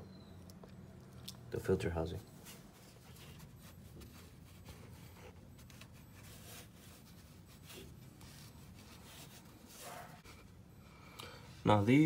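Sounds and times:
hand rubbing and handling: 0:02.2 - 0:10.8.

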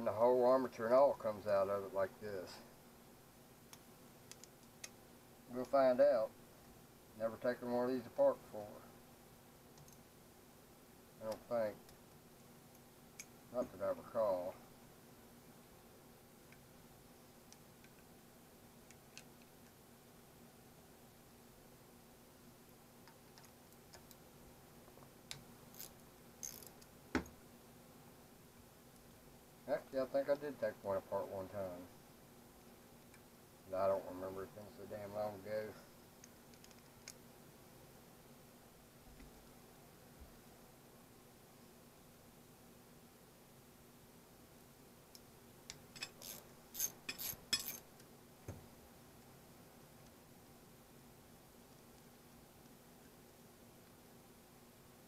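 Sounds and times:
screwdriver clicking and scraping: 0:25.7 - 0:26.9, 0:46.0 - 0:47.9.

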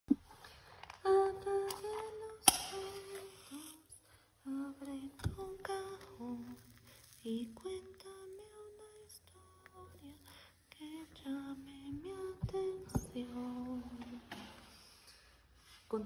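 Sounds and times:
match being struck: 0:02.4 - 0:03.4, 0:06.0 - 0:08.1.

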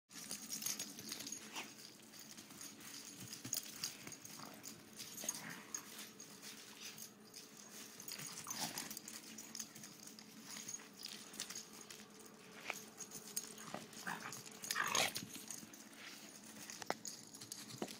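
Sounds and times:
dog paws scuffling: 0:00.2 - 0:17.9
dogs yelping: 0:13.5 - 0:15.6.

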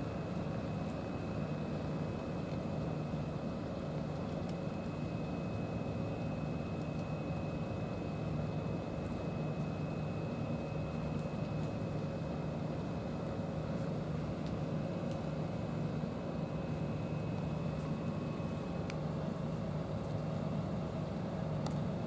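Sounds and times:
low mechanical drone: 0:00.0 - 0:22.0
faint high whine: 0:04.4 - 0:22.0.

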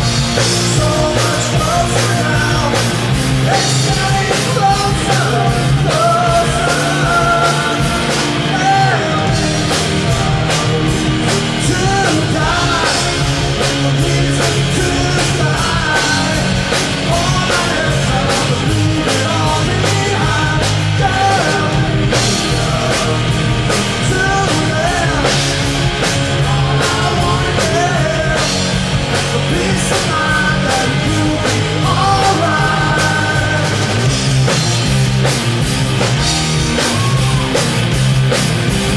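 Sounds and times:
backing vocals: 0:00.0 - 0:34.6
man singing lead vocals: 0:00.0 - 0:35.0
drum kit: 0:00.0 - 0:38.9
electric bass: 0:00.0 - 0:38.9
electric guitar: 0:00.0 - 0:38.9.

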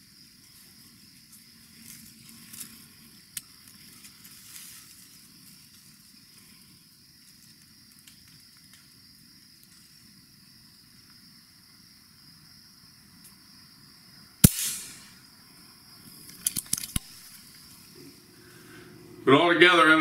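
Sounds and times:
high-pitched hiss: 0:14.4 - 0:20.0.

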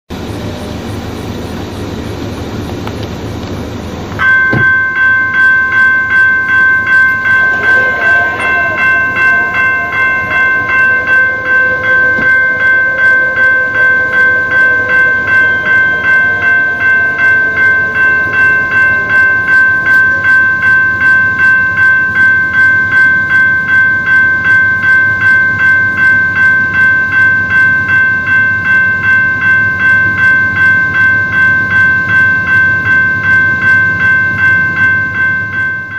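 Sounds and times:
railroad crossing bell ringing: 0:00.1 - 0:35.9.

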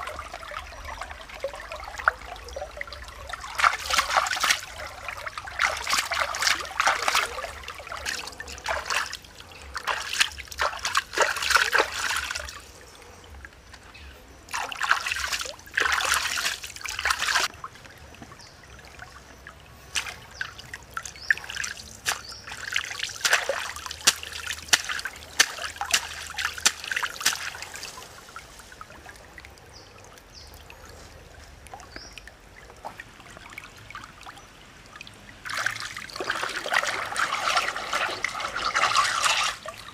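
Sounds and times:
flowing stream water: 0:00.0 - 0:39.9
hands splashing in water: 0:01.4 - 0:12.8, 0:14.5 - 0:17.5, 0:19.9 - 0:28.8, 0:35.4 - 0:39.9.

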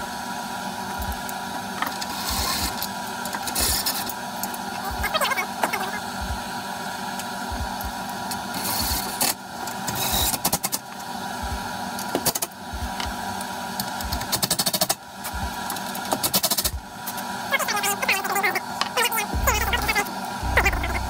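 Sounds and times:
cordless drill spinning: 0:02.0 - 0:02.8, 0:03.5 - 0:04.1.

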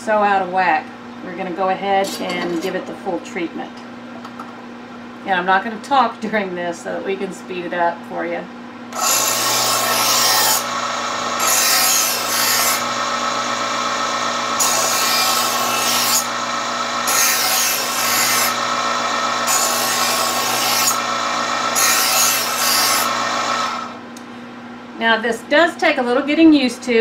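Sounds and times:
knife sharpener motor humming: 0:08.9 - 0:24.0
knife grinding strokes: 0:17.0 - 0:18.6.

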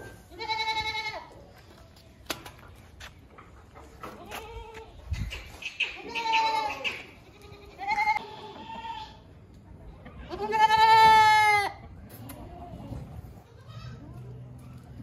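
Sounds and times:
goats bleating: 0:00.3 - 0:01.3, 0:06.0 - 0:09.2, 0:10.3 - 0:14.0.

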